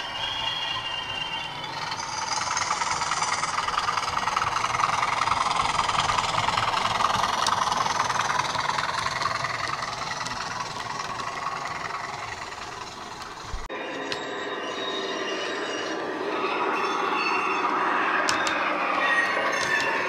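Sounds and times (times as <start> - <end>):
model diesel engine sound from speaker: 0.0 - 13.7.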